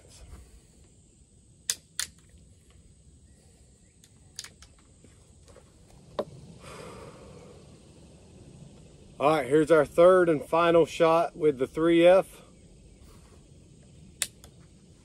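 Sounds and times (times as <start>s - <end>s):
rifle clicks: 1.6s - 2.4s, 4.0s - 4.8s
soft rustle: 13.0s - 13.5s.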